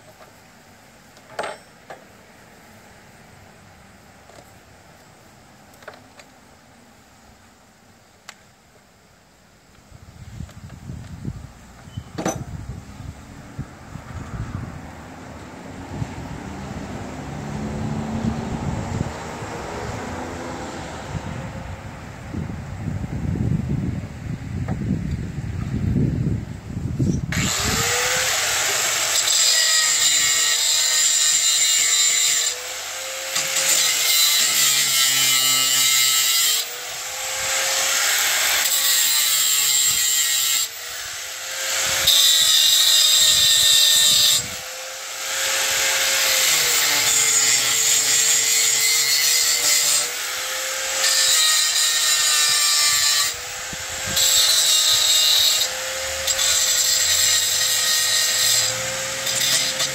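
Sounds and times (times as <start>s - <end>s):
electric drill boring into metal: 27.3s - 59.9s.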